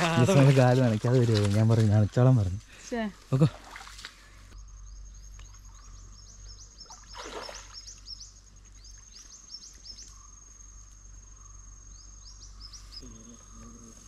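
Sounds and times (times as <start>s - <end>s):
high-pitched insect trill: 3.2s - 14.0s.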